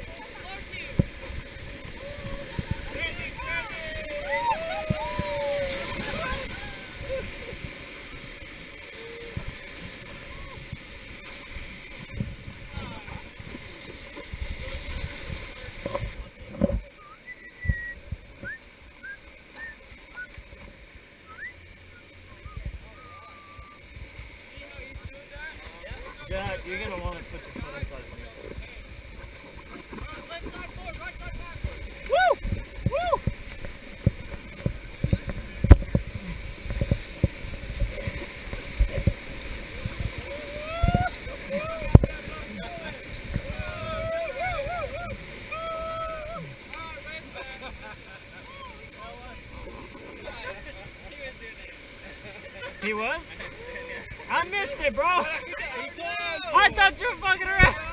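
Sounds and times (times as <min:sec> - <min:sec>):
river rapids rushing and splashing: 0:00.0 - 0:57.9
water buffeting microphone: 0:00.0 - 0:57.9
rising whistle-like chirps: 0:17.0 - 0:20.4, 0:21.2 - 0:23.8
raft and paddle thumps: 0:29.6 - 0:43.6.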